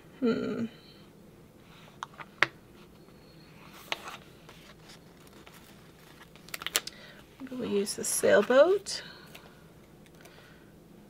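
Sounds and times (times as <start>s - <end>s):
paper rustle: 3.7s - 6.9s.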